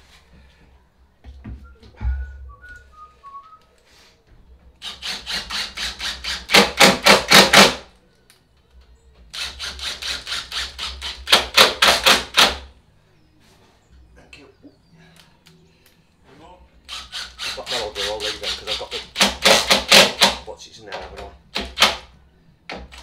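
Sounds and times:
impact driver driving screws: 4.8 - 7.8, 9.3 - 12.6, 16.9 - 20.4.

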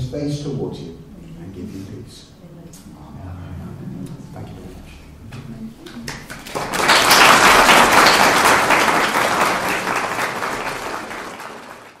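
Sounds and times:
congregation applauding: 5.9 - 12.0.

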